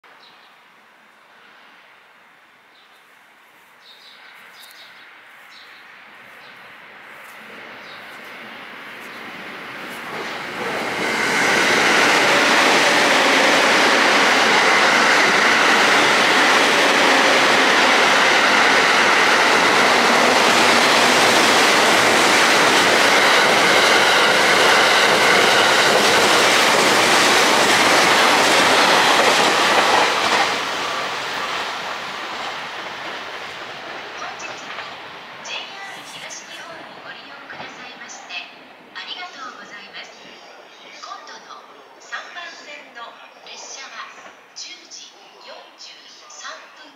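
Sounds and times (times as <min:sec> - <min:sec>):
train wheels rushing on rail: 0:05.5 - 0:42.7.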